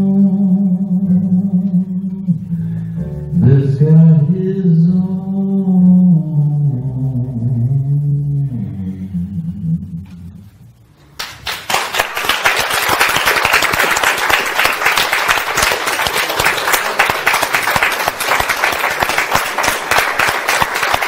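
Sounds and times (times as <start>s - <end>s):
audience applause: 11.2s - 21.0s.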